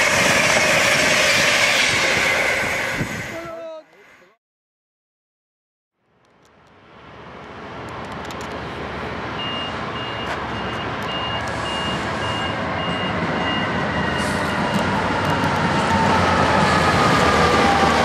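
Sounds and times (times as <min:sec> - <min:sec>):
diesel locomotive engine running: 0:00.0 - 0:03.6, 0:07.0 - 0:18.0
high electronic beep: 0:09.4 - 0:14.9.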